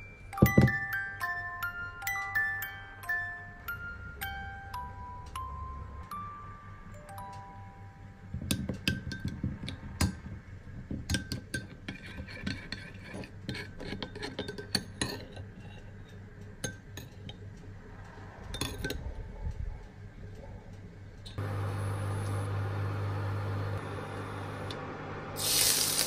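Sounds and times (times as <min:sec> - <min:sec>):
metal spoon scraping glass bowl: 0:11.6 - 0:15.9.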